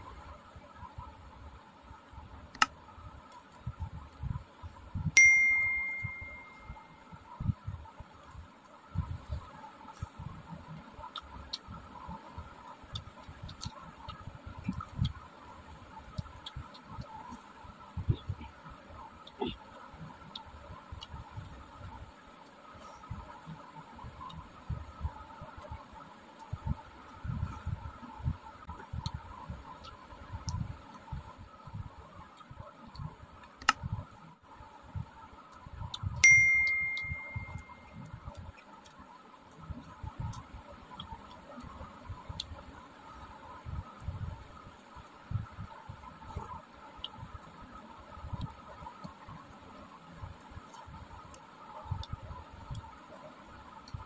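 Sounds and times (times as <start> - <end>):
bright bell ding: 5.2 - 6.7, 36.2 - 37.8.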